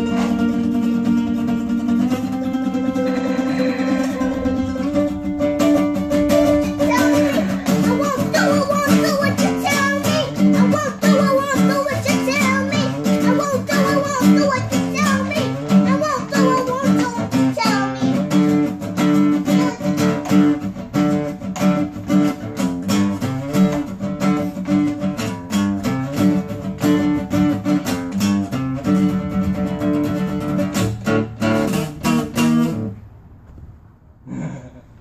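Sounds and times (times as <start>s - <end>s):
acoustic guitar strumming: 0.0s - 33.6s
child singing: 6.2s - 18.5s, 19.3s - 20.5s.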